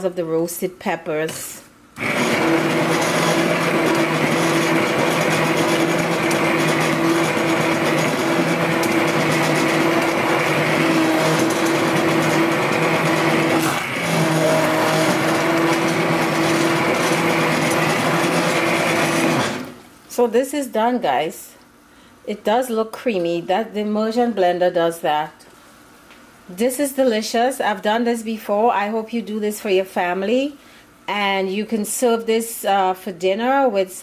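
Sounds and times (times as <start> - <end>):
immersion blender motor hum: 2.0 - 19.8.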